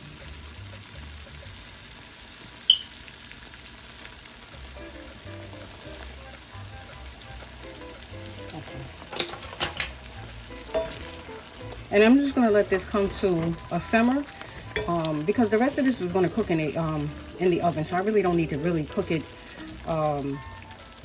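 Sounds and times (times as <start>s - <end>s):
sauce sizzling in a skillet: 0.0s - 21.0s.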